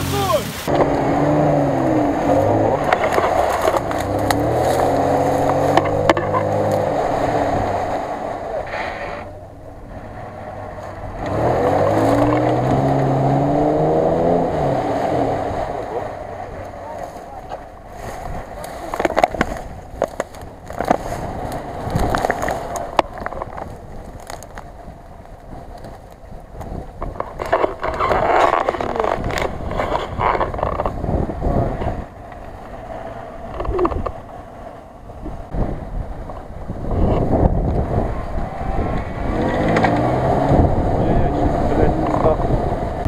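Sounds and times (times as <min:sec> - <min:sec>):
suv engine revving: 0:00.0 - 0:24.6, 0:27.1 - 0:43.0.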